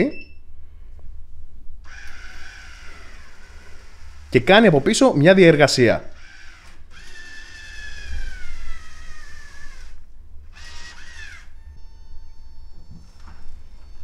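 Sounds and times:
motor whining: 0:01.8 - 0:05.1, 0:06.1 - 0:14.0
faint steady high tone: 0:11.6 - 0:14.0.

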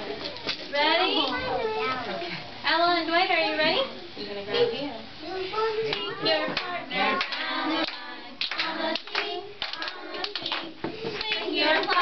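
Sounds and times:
voices singing: 0:05.8 - 0:12.0
hand clapping: 0:05.9 - 0:12.0.

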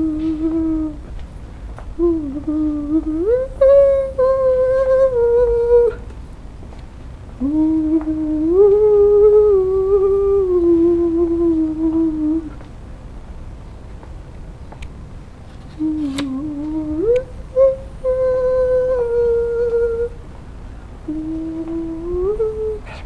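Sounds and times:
person humming a slow tune: 0:00.0 - 0:01.2, 0:01.9 - 0:06.1, 0:07.4 - 0:12.6, 0:15.7 - 0:20.2, 0:21.0 - 0:23.0.

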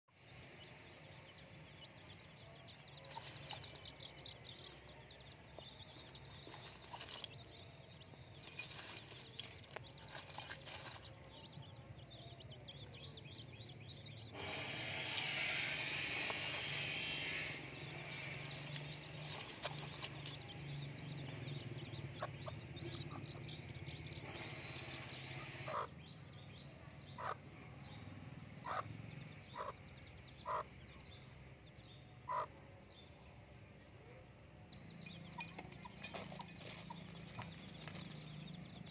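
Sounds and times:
chicks peeping: 0:01.2 - 0:26.1, 0:27.1 - 0:27.4, 0:28.6 - 0:30.9, 0:34.7 - 0:38.9
hissing noise: 0:14.3 - 0:19.1.

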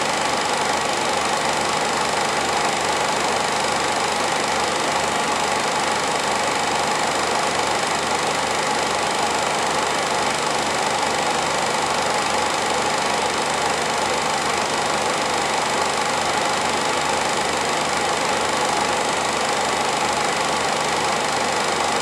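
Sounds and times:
film projector running: 0:00.0 - 0:22.0.

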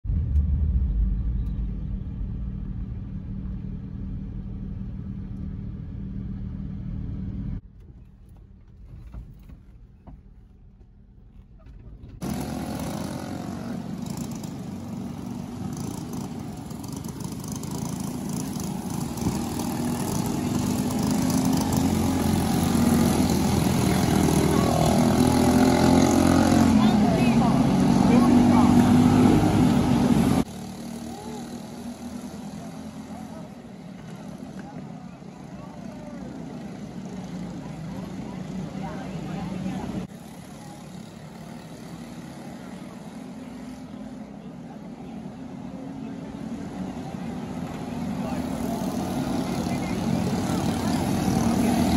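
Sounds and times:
car road noise rumble: 0:00.0 - 0:40.3.

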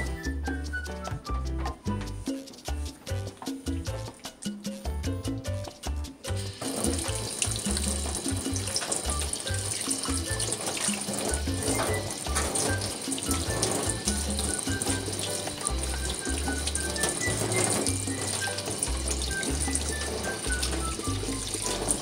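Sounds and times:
background music with bass: 0:00.0 - 0:22.0
tap running into steel sink: 0:06.4 - 0:22.0.

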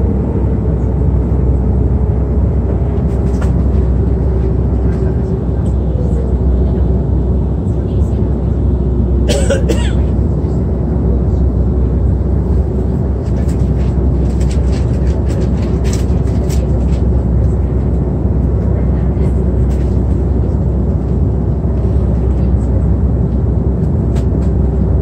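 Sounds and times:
airliner cabin rumble: 0:00.0 - 0:25.0.

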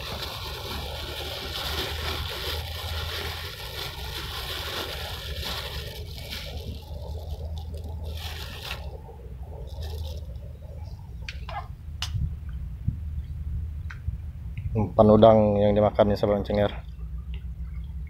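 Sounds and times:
plastic bag rustling: 0:00.0 - 0:10.9.

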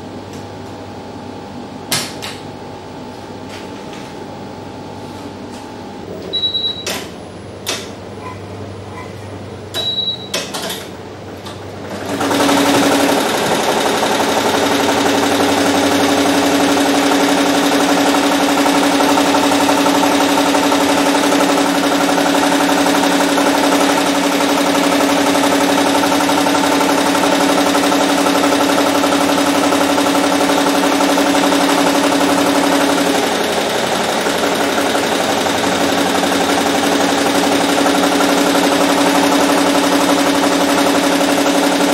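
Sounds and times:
short beep: 0:06.3 - 0:07.0, 0:09.8 - 0:10.4
embroidery machine running: 0:11.3 - 0:41.9.

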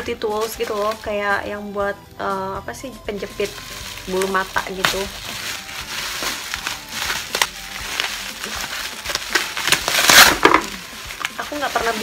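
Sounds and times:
bubble wrap crackling: 0:00.0 - 0:01.8, 0:03.0 - 0:12.0.

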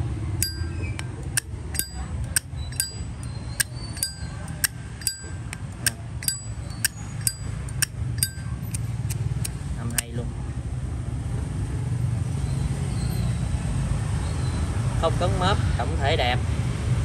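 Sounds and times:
lighter lid metallic clinks: 0:00.4 - 0:03.0, 0:03.6 - 0:09.2.

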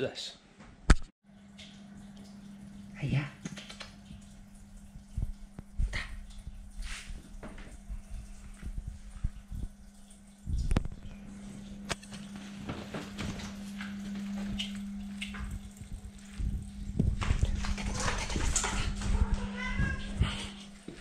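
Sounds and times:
steady low hum: 0:01.4 - 0:21.0
knocks and rustles: 0:12.0 - 0:21.0
cat meowing: 0:19.0 - 0:20.6.

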